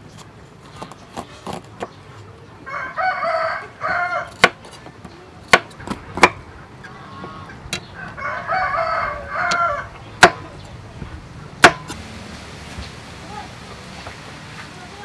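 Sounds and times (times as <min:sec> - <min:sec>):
rooster crowing: 0:02.7 - 0:04.4, 0:07.1 - 0:10.0
knife chopping on wooden block: 0:04.3 - 0:04.8, 0:05.5 - 0:06.4, 0:10.2 - 0:10.4, 0:11.6 - 0:12.0.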